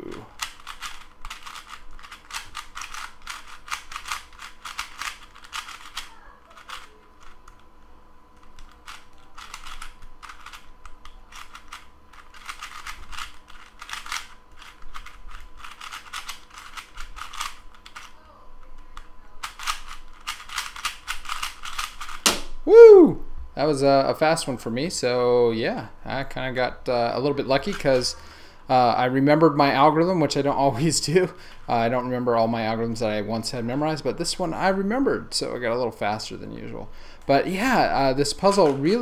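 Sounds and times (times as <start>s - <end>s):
speed cube plastic clicking: 0.1s - 7.6s, 8.4s - 22.3s.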